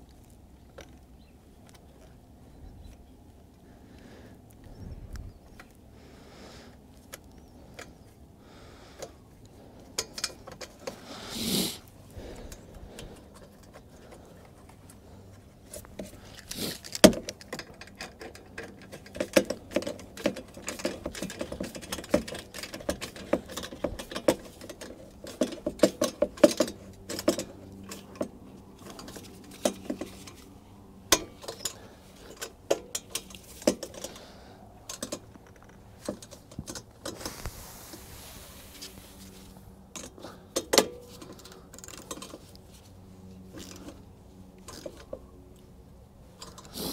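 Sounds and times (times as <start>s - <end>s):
metallic clinks and knocks: 15.9s - 34.2s.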